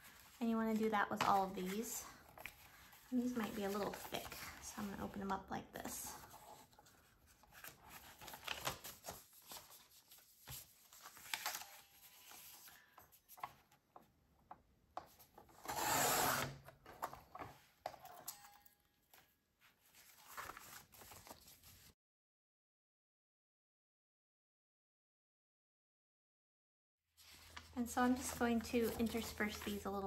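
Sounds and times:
paper rustling: 0.0s - 5.2s, 6.1s - 14.1s, 19.1s - 22.0s, 27.2s - 30.0s.

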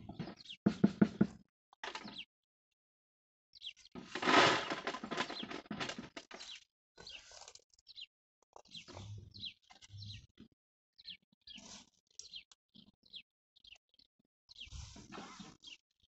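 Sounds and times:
garden tool scraping and rustling: 4.0s - 7.6s, 14.7s - 15.8s
bird chirps: 7.9s - 10.4s, 11.0s - 16.0s.

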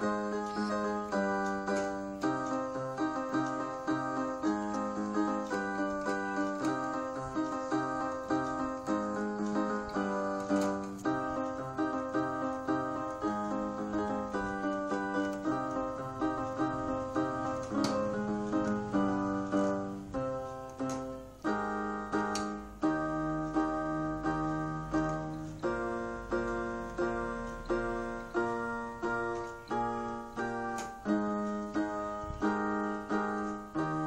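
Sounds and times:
electronic keyboard piano chords: 0.0s - 34.0s.

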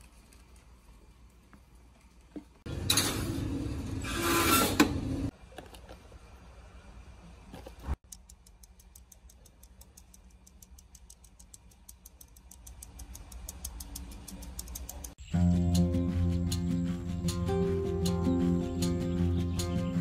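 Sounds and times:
sieve tapping light ticks: 8.0s - 19.9s
cheerful mandolin music: 15.4s - 20.0s.

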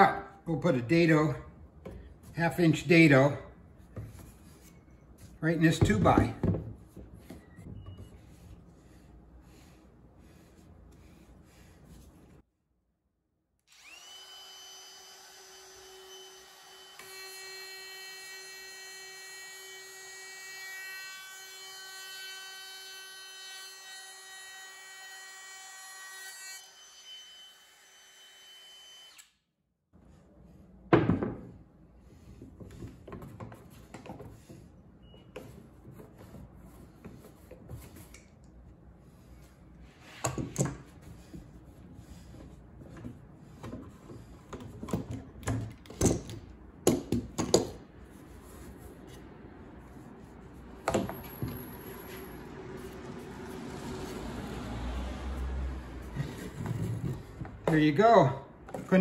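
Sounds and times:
knocking and handling sounds: 1.8s - 2.4s, 3.8s - 9.7s, 30.8s - 38.2s, 40.0s - 47.8s, 50.8s - 52.2s, 56.2s - 57.8s, 58.6s - 59.0s
router high whine cutting wood: 13.7s - 18.1s, 27.7s - 29.3s.

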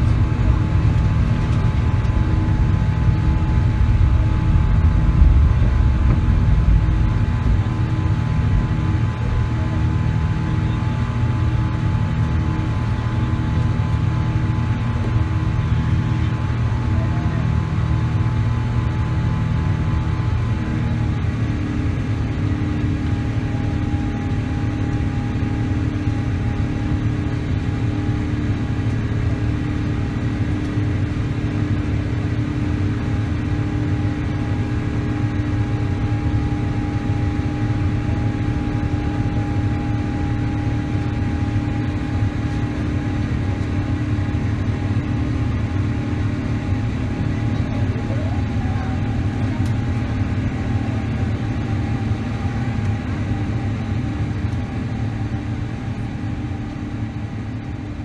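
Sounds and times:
jet engines roaring: 0.0s - 16.9s.

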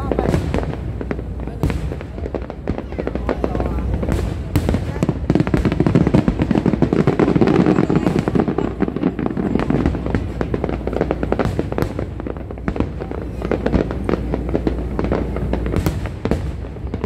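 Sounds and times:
fireworks popping and crackling: 0.0s - 17.0s.

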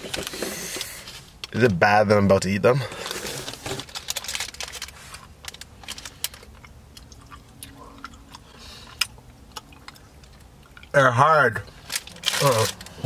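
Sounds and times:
snack packet crinkling: 2.9s - 10.9s, 11.7s - 13.0s
chewing hard snacks: 2.9s - 11.0s, 11.7s - 13.0s.

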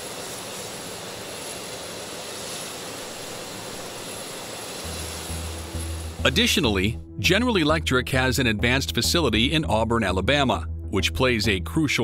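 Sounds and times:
jet engine rushing: 0.0s - 7.0s
high steady whine: 0.0s - 7.8s.

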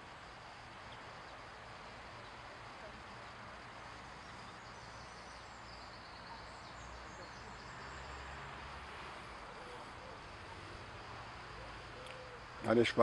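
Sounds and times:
faint hiss: 0.0s - 13.0s
faint bird chirps: 4.1s - 8.4s, 11.4s - 12.9s.

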